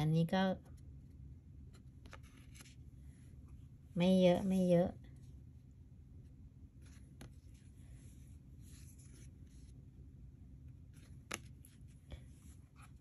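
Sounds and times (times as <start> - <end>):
playing cards rustling on cloth: 1.6 - 3.7, 6.6 - 13.0.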